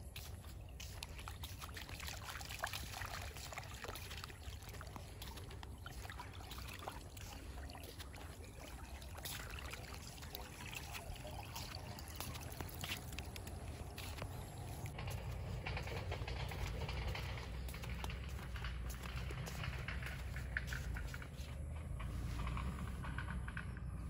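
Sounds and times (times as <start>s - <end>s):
puppy stepping through water: 0.0s - 23.1s
water trickling through gutter: 0.0s - 23.3s
low steady rumble: 0.0s - 24.0s.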